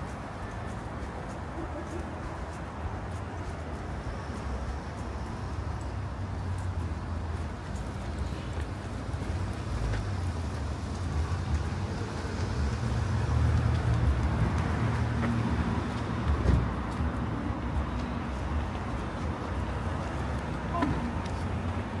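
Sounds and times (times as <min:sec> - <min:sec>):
vehicle engine and tyre rumble: 0:00.0 - 0:22.0.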